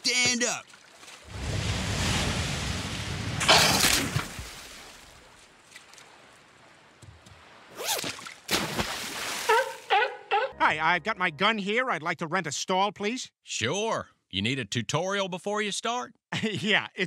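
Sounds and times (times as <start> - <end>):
loud water splash: 0.7 - 5.4, 7.4 - 9.8
wave breaking: 1.1 - 9.6.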